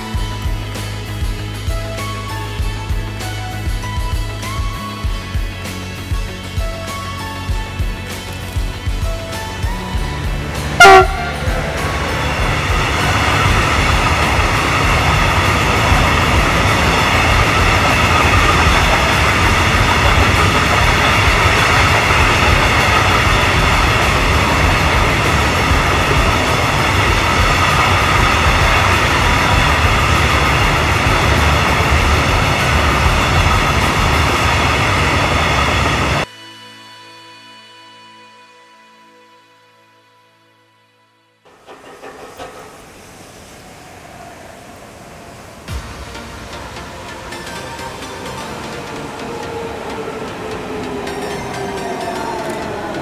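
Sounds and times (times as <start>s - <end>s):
freight wagons rumbling on rails: 0.0s - 36.3s, 41.5s - 53.0s
train horn blast: 9.8s - 33.8s.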